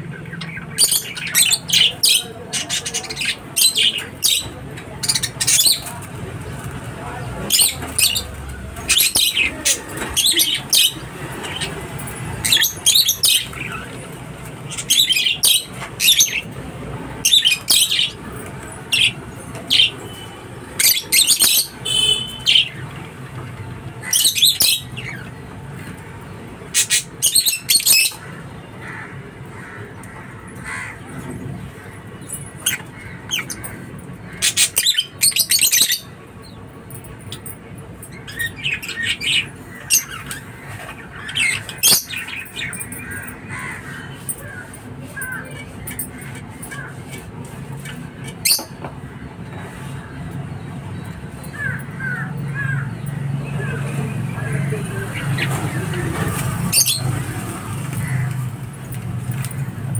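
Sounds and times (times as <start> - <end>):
lovebirds chirping: 17.2 - 23.1, 31.6 - 58.4.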